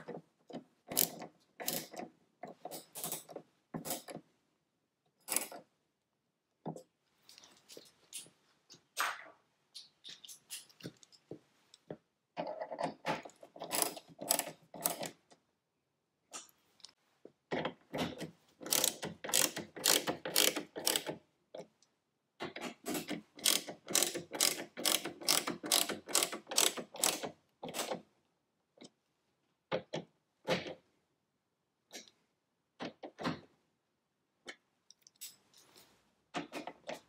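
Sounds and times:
hand ratchet clicking: 0.9 - 2.0, 13.6 - 15.2, 18.6 - 21.2, 23.4 - 27.2.

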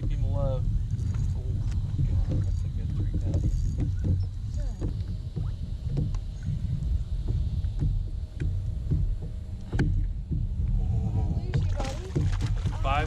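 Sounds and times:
water slapping kayak hulls: 0.0 - 13.0
wind buffeting microphone: 0.0 - 13.0.

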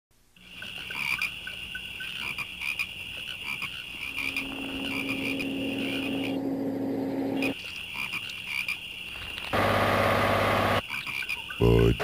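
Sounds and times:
frogs croaking and peeping: 0.4 - 9.6, 10.5 - 12.0
insects chirping: 0.4 - 12.0
low steady hum: 3.9 - 7.8.

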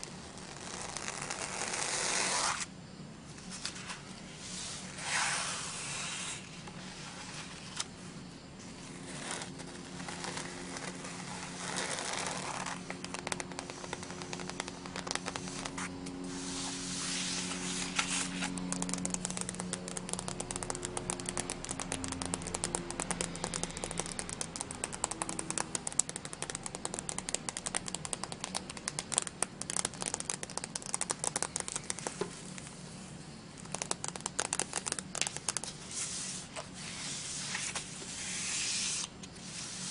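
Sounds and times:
cardstock rustling and sliding: 3.5 - 7.9, 8.8 - 20.2, 34.6 - 39.9
fingernails tapping on foil sheet: 9.4 - 16.2, 17.5 - 32.3, 33.6 - 35.8.

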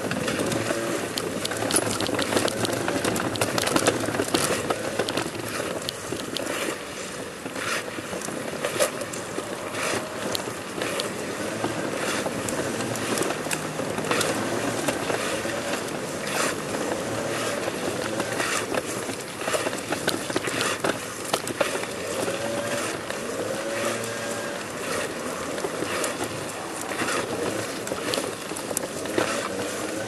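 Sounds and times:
clothing scraping on stone: 0.0 - 30.0.

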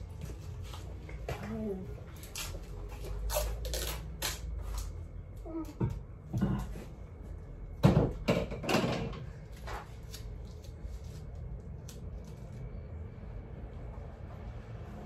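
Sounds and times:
objects knocking and clunking: 5.6 - 7.0, 7.8 - 9.9.

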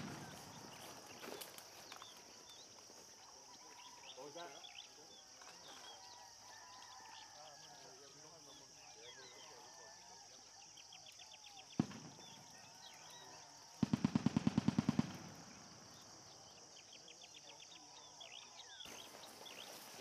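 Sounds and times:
gunshot: 11.7 - 12.6, 13.8 - 15.6.

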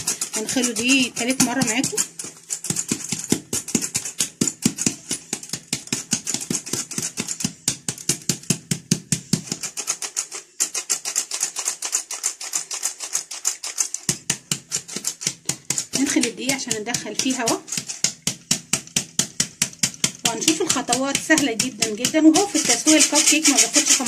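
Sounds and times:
flour sieve rattling: 0.0 - 24.0.

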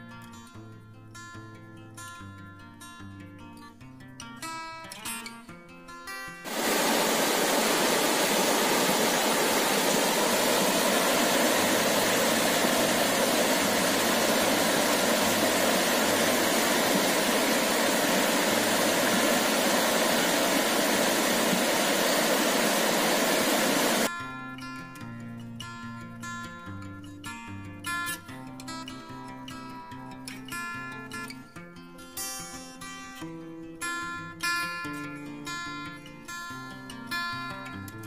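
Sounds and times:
stream rushing over rocks: 6.5 - 24.1.

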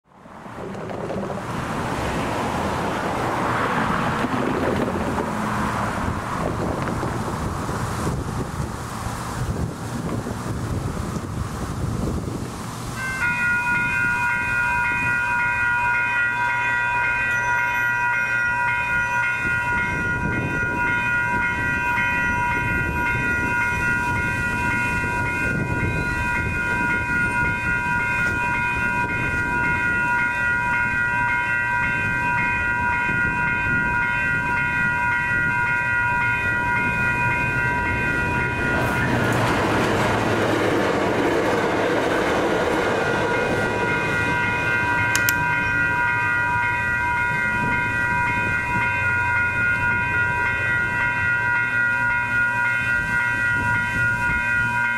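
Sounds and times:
train passing with wheel noise: 0.1 - 54.9
railroad crossing bells ringing: 12.9 - 54.9.

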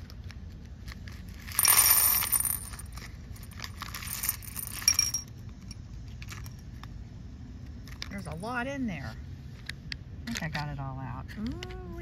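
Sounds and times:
beads clattering into bowl: 1.4 - 5.3.

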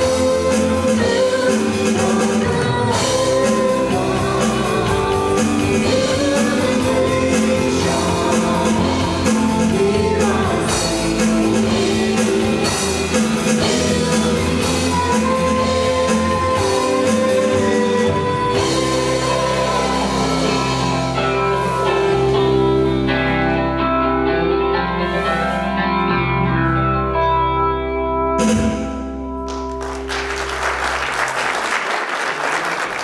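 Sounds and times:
live rock band playing: 0.0 - 31.3
audience applause: 29.5 - 33.0.

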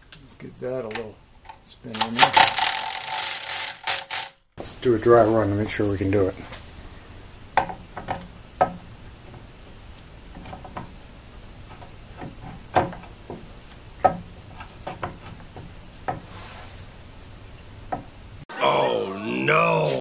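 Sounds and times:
gear knocking against housing: 2.0 - 4.3
metal clicks and knocks: 11.7 - 16.2.

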